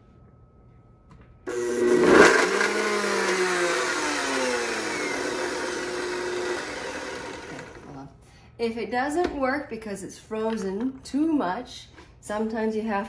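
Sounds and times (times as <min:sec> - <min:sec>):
blender motor running: 0:01.5 - 0:07.9.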